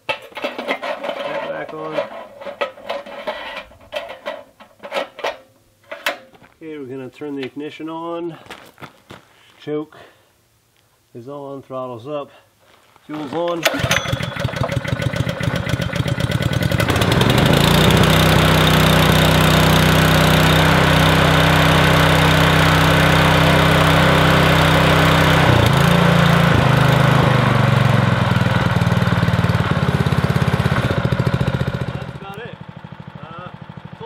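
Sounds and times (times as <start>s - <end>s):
small engine running: 13.7s - 34.0s.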